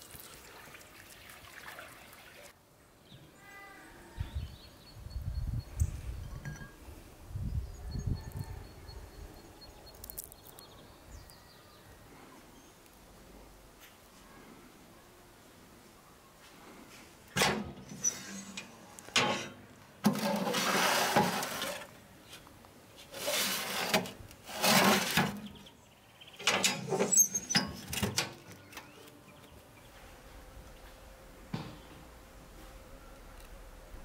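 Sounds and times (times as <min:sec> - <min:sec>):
metal tray sliding in oven: 0:17.4 - 0:19.5, 0:20.1 - 0:21.9, 0:23.2 - 0:25.4.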